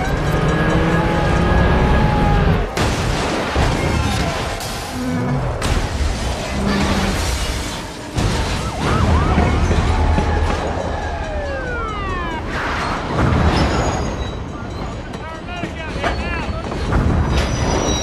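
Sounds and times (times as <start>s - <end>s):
police sirens wailing: 0.0s - 2.8s, 6.3s - 15.0s.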